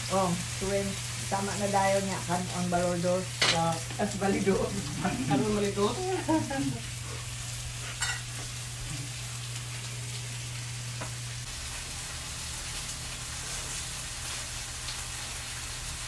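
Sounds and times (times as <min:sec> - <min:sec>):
meat sizzling on grill pan: 0:00.0 - 0:16.0.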